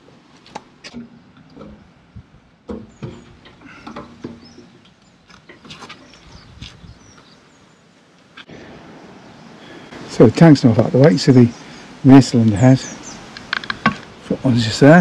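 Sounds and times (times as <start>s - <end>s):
fuel tank clunks and knocks: 2.6s - 4.8s.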